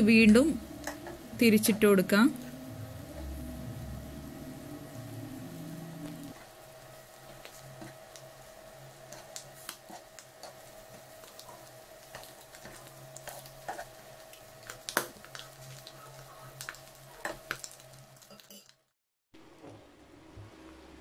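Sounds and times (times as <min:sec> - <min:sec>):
steady hum: 0:00.0 - 0:17.2
egg slices sizzling in oil: 0:06.0 - 0:18.8.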